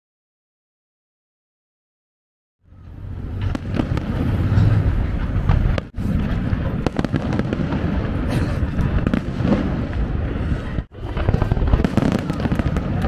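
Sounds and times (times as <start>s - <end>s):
fireworks bangs and crackles: 3.0s - 13.0s.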